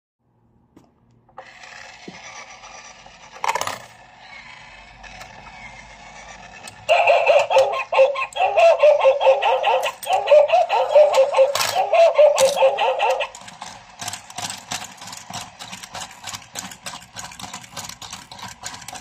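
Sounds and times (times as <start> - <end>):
toy coin bank tinny jingle: 6.2 - 13.7.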